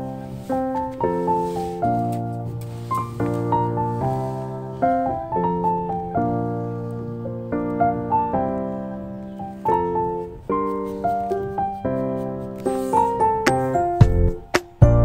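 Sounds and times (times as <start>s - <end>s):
slow gentle piano chords: 0.0s - 15.0s.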